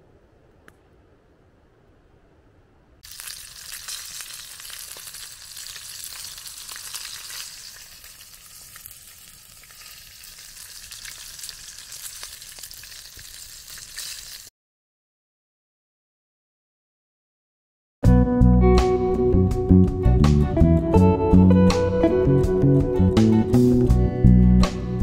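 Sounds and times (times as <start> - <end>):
sausages sizzling in a tin: 3.0 - 14.5.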